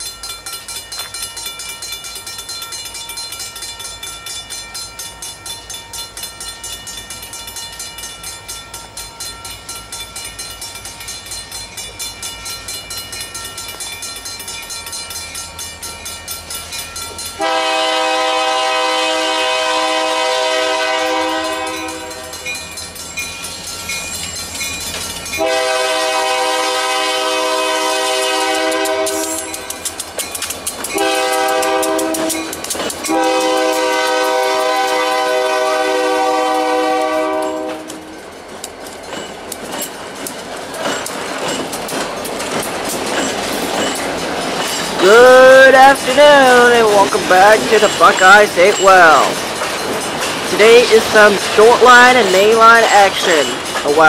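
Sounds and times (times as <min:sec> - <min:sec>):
train wheels clacking over rails: 0:00.0 - 0:54.0
locomotive horn blowing: 0:17.4 - 0:22.5, 0:25.4 - 0:29.7, 0:31.0 - 0:38.2.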